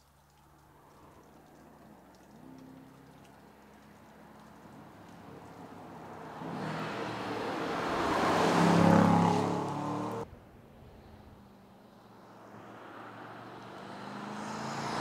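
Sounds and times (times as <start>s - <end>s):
car engine approaching: 0.4s - 10.3s, 11.3s - 15.0s.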